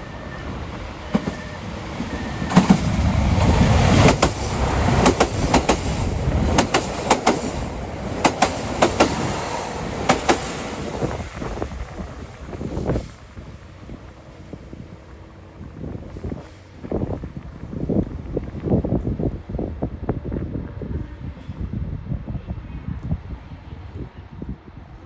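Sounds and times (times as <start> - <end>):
train engine rumbling: 0.0 - 25.0
train wheels clacking over rail joints: 1.1 - 10.8.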